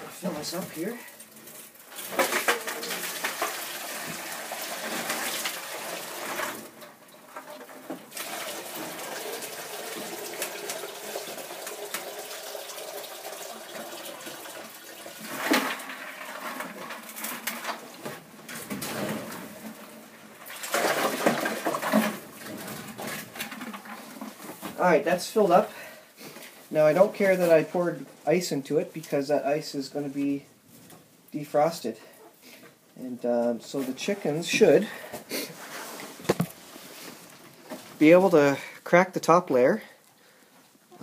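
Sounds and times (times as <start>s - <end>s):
water with ice pouring into bowl: 1.9s - 6.8s, 8.1s - 17.3s, 20.4s - 22.3s.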